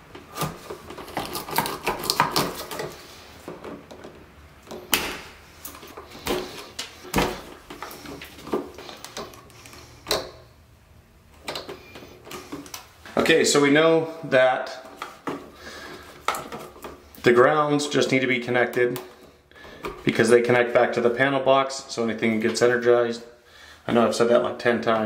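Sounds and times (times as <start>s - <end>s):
tools clicking and scraping on wires: 0.4s - 3.0s, 7.6s - 10.4s.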